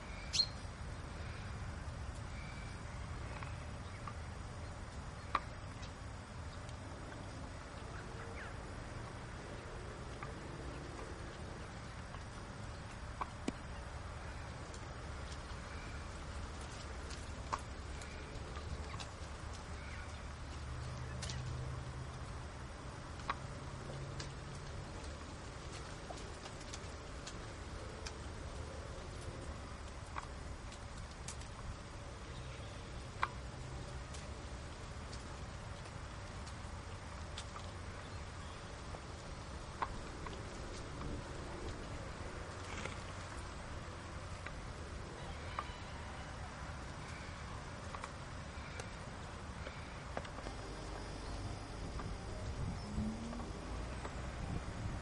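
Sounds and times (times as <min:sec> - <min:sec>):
faint bird chirps: 0:00.0 - 0:01.6
low steady hum: 0:00.0 - 0:55.0
horses biting grass: 0:39.9 - 0:43.4
steady low rumble: 0:46.4 - 0:55.0.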